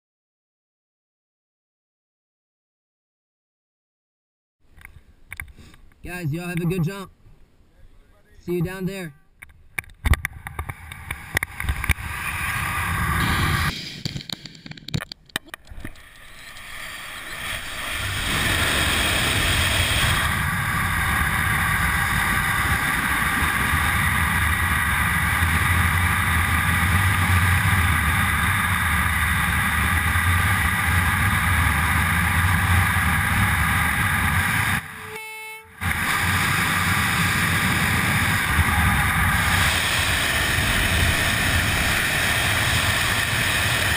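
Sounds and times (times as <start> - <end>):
wind rushing over camera: 10.0 - 15.1, 15.7 - 35.0, 35.8 - 43.9.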